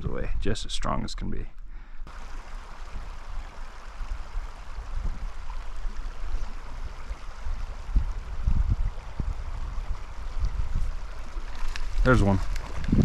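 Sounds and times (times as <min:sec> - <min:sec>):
creek flowing: 0:02.0 - 0:13.0
low rumbling on microphone: 0:02.1 - 0:13.0.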